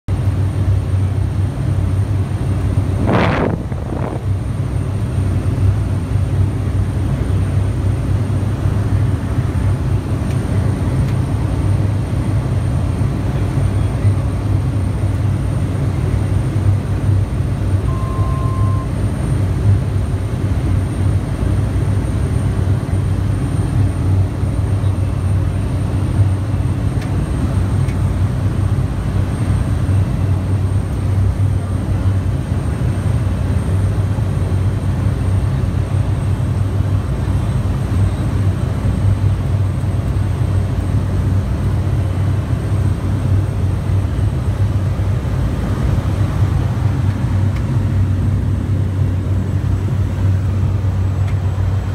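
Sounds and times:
turboprop engine droning: 0:00.1 - 0:51.9
high whine: 0:02.2 - 0:07.0, 0:07.6 - 0:20.0
short beep: 0:17.8 - 0:18.9.

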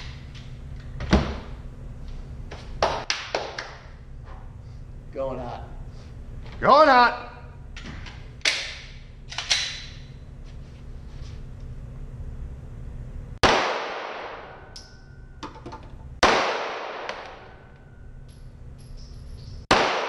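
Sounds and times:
pistol shots echoing: 0:13.4 - 0:14.7, 0:16.2 - 0:17.5, 0:19.7 - 0:20.0.

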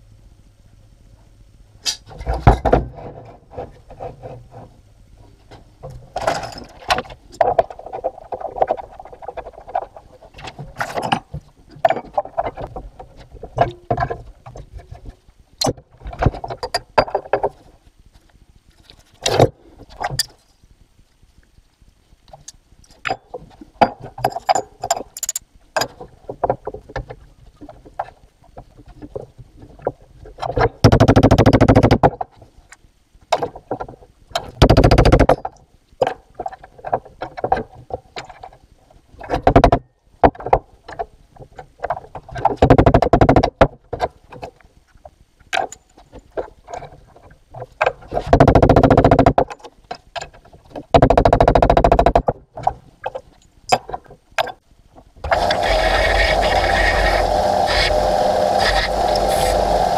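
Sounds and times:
loud rasping bursts: 0:55.3 - 0:59.9.

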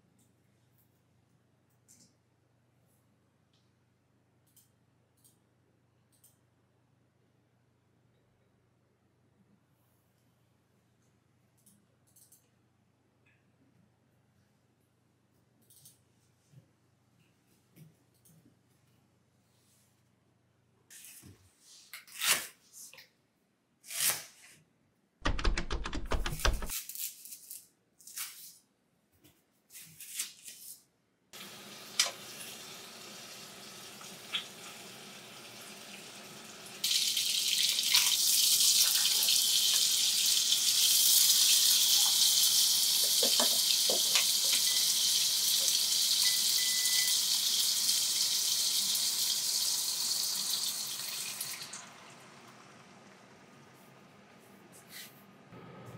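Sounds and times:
chicken sizzling in a pan: 0:31.4 - 0:53.2.

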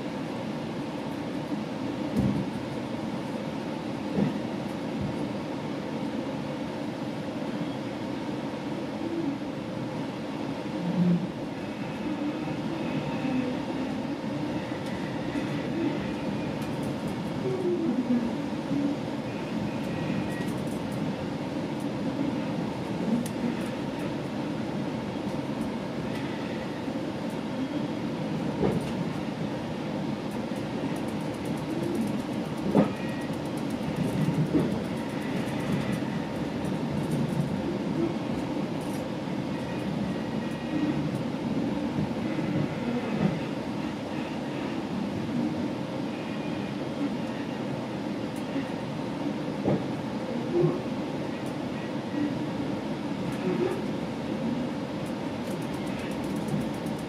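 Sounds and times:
train running rumble: 0:00.0 - 0:57.0.

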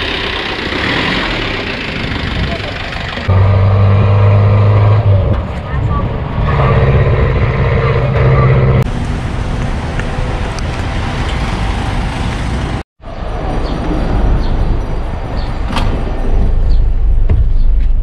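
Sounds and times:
truck engine running: 0:00.0 - 0:12.8
bus engines: 0:00.0 - 0:17.3.

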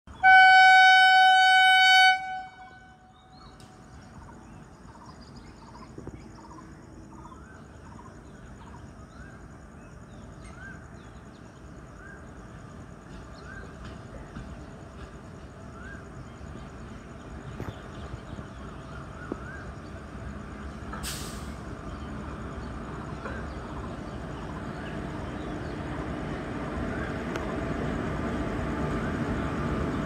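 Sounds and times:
locomotive horn blast: 0:00.1 - 0:03.3
train rumbling: 0:00.1 - 0:30.0.

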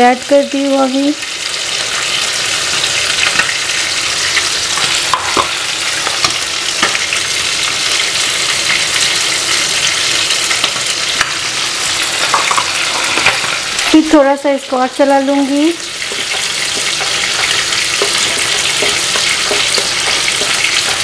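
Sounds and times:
onions sizzling in hot oil: 0:00.0 - 0:21.0
spatula tapping pot: 0:16.0 - 0:21.0.

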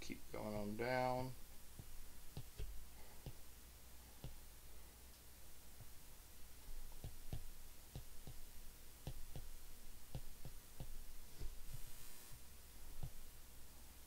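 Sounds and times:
stylus tapping on tablet screen: 0:01.8 - 0:03.4, 0:04.2 - 0:04.4, 0:06.6 - 0:11.9, 0:13.0 - 0:13.2.

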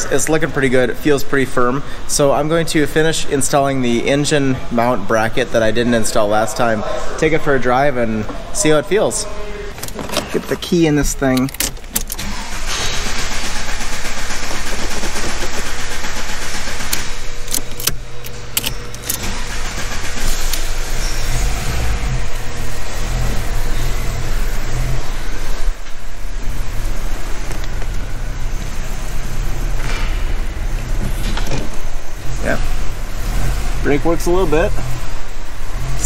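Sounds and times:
car engine running: 0:00.0 - 0:36.0
sharp clicks: 0:11.2 - 0:12.5, 0:14.4 - 0:19.4.

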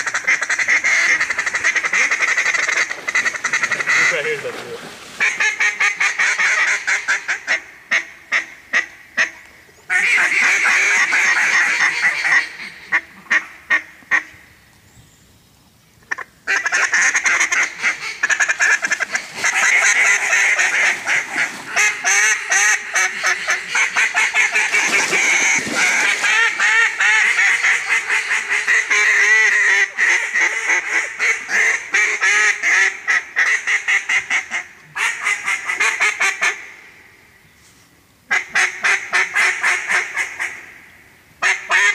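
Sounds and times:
rapid duck call chatter: 0:00.0 - 0:04.6, 0:16.5 - 0:34.1
duck calls quacking: 0:00.0 - 0:14.3, 0:16.1 - 0:36.7, 0:38.3 - 0:40.7, 0:41.4 - 0:41.9.

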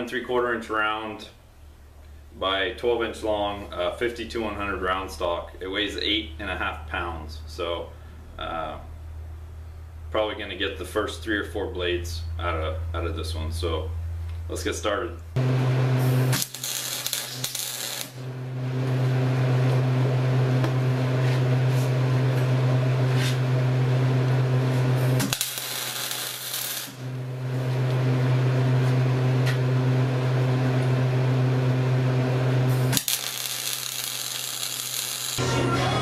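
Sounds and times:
welder arc crackling buzz: 0:15.4 - 0:35.6.

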